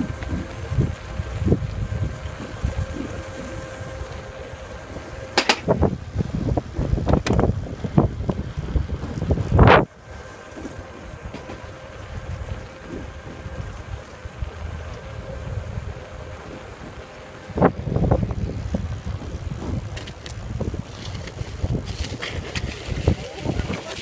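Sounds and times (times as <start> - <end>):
faint steady whine: 0.0 - 24.0
low rolling rumble: 0.0 - 24.0
wind buffeting microphone: 0.0 - 24.0.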